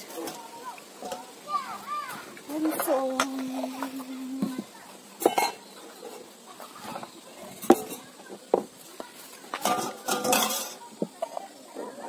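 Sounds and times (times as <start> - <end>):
utensil clinking on metal pot: 5.2 - 5.7, 9.6 - 10.8.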